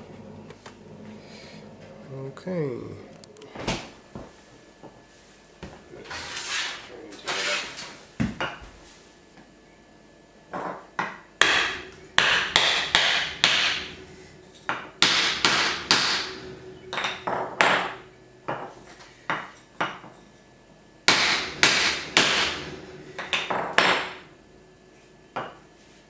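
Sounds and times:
hammer knocking on wooden block: 11.0s - 13.8s, 15.0s - 16.3s, 21.1s - 22.5s.

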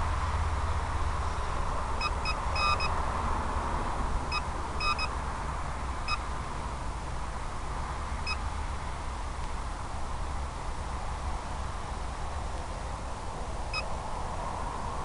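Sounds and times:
steady noise with low rumble: 0.0s - 15.0s
short electronic beeps: 2.0s - 2.9s, 4.3s - 5.1s.

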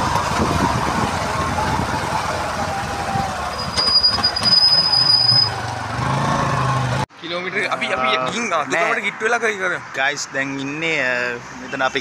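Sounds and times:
wind noise on microphone: 0.0s - 4.6s
motorcycle rough rumble: 0.0s - 7.1s.

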